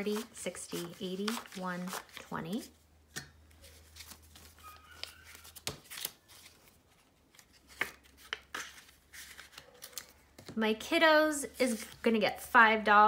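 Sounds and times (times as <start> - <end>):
paper banknotes rustling: 0.0 - 2.7, 3.6 - 10.5.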